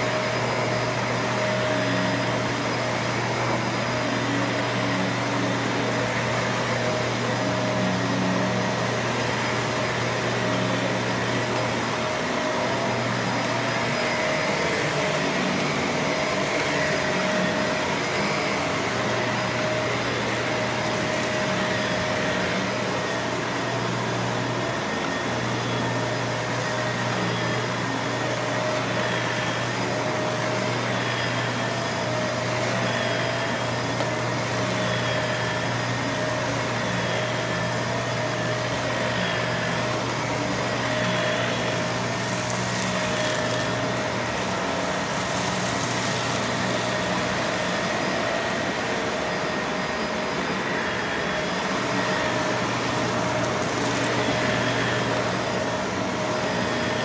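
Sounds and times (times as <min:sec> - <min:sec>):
vacuum cleaner running on carpet: 0:00.0 - 0:57.0.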